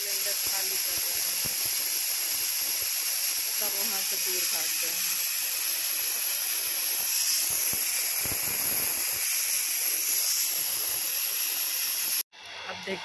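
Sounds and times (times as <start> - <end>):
gas hissing from cylinder: 0.0 - 12.8.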